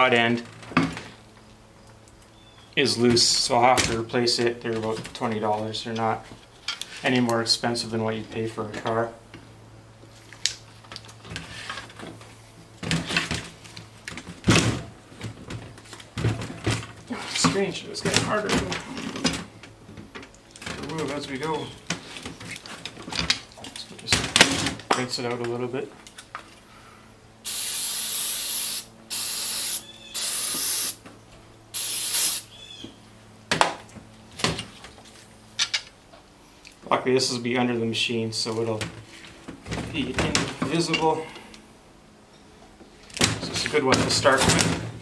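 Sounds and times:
aerosol spray hissing: 27.4s - 31.0s, 31.8s - 32.5s.

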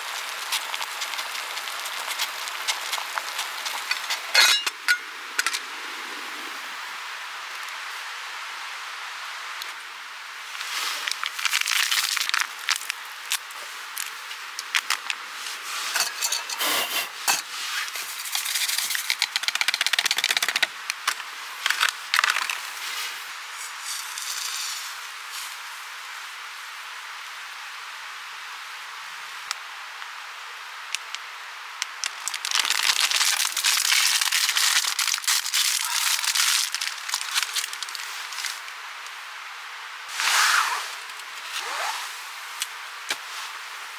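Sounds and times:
packet crinkling and clicking: 0.0s - 4.4s, 11.0s - 15.2s, 18.4s - 22.6s, 31.8s - 38.6s
quiet steady hiss: 0.0s - 43.9s.

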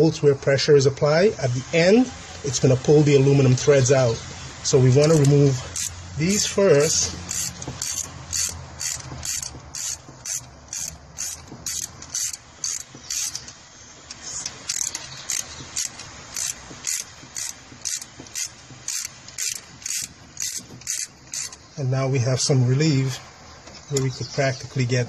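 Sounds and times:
ratchet wrench clicking: 5.0s - 21.6s.

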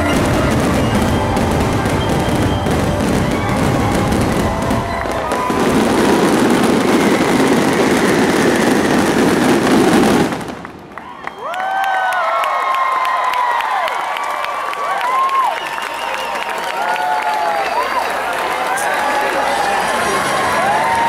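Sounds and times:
fireworks crackling: 0.0s - 11.3s
crowd cheering and whooping: 0.0s - 21.0s.

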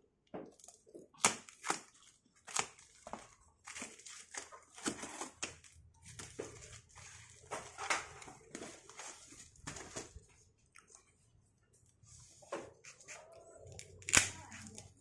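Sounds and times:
cardboard and plastic tearing: 1.1s - 10.3s, 12.9s - 15.0s.

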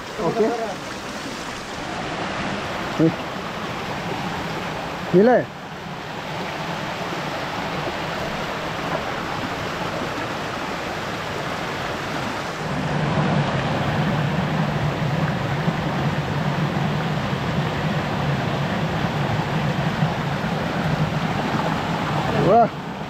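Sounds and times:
stream splashing over stones: 0.0s - 23.0s.

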